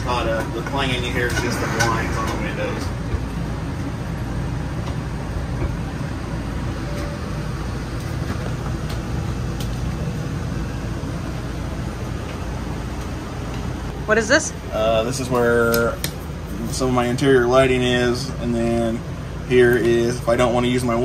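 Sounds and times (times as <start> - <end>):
hydraulic slide-out system running: 1.1 - 3.0.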